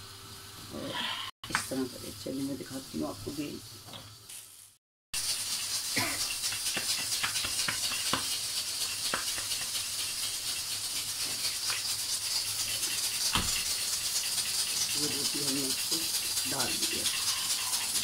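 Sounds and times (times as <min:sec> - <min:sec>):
steady hiss: 0:04.3 - 0:18.0
dough slapped between hands: 0:06.0 - 0:08.4.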